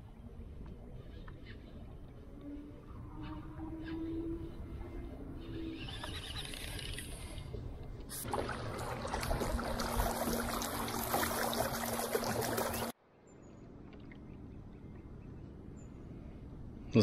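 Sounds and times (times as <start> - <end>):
water splashing along kayak hull: 7.2 - 13.0.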